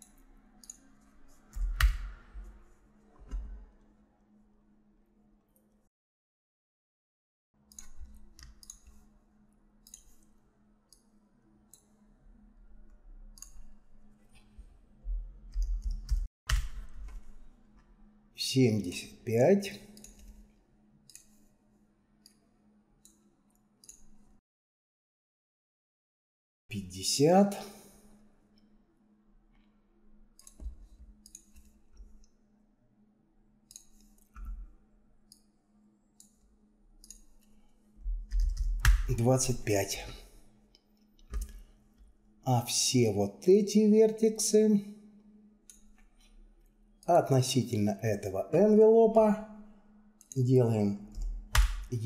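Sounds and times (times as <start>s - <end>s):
computer mouse clicks: 0.0s - 0.9s, 7.7s - 9.0s, 9.8s - 10.3s, 13.3s - 13.8s, 19.9s - 20.4s, 21.1s - 21.4s, 23.0s - 24.2s, 30.4s - 32.4s, 33.7s - 34.6s, 37.0s - 37.6s, 40.7s - 41.7s
keyboard and mouse clicking: 7.7s - 9.0s, 38.2s - 39.1s.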